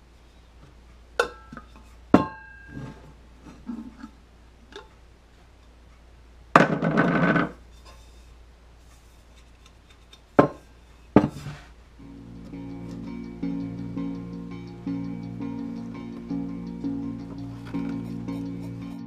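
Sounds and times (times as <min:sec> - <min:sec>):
scraping rub on metal tumbler: 0:07.7 - 0:11.8.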